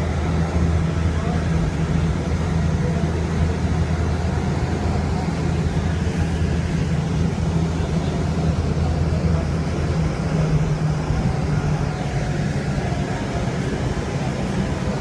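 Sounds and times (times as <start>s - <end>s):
train hum and rumble: 0.0s - 15.0s.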